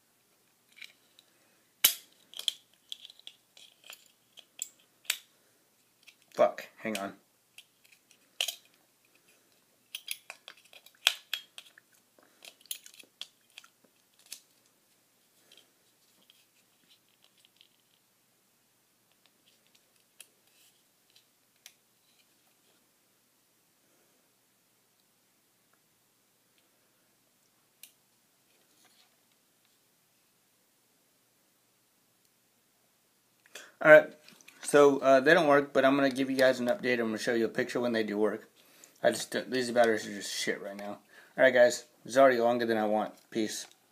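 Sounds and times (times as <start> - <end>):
small sharp clicks and crackles: 5.9 - 14.8.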